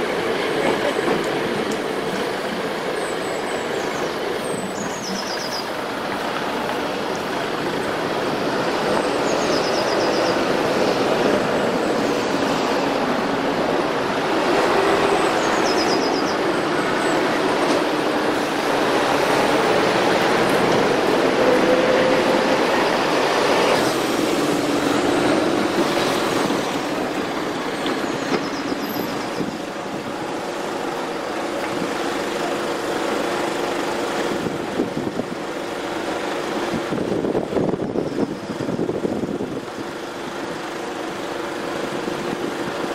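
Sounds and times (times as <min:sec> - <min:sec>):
traffic hum: 0:00.0 - 0:42.9.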